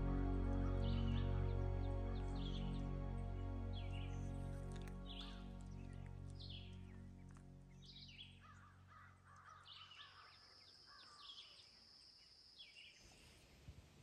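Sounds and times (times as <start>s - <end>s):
background music: 0.0s - 8.8s.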